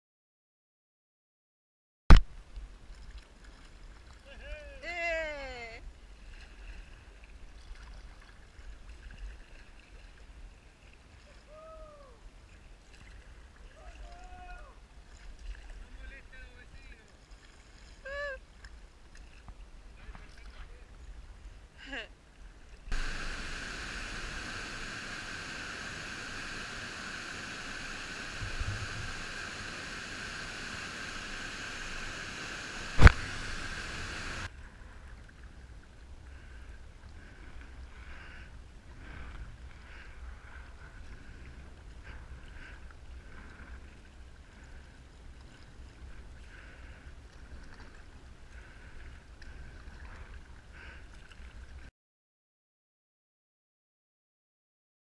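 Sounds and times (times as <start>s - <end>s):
water washing against kayak hull: 22.9s - 36.5s
sharp click: 33.0s - 33.4s.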